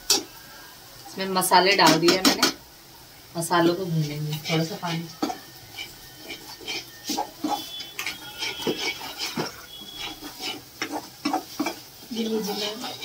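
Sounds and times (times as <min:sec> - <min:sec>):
metal spatula scraping frying pan: 0:04.1 - 0:13.0.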